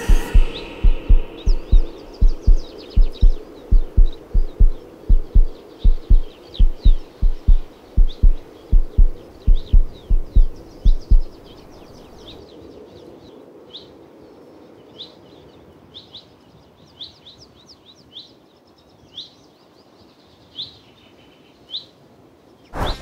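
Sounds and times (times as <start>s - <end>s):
heartbeat thumps: 0.0s - 11.8s
small bird chirping: 0.0s - 12.4s.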